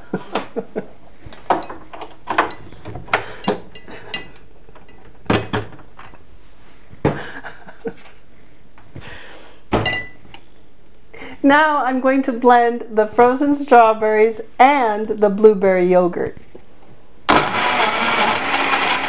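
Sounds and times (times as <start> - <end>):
clicks and knocks of kitchen appliances: 1.3 - 6.1.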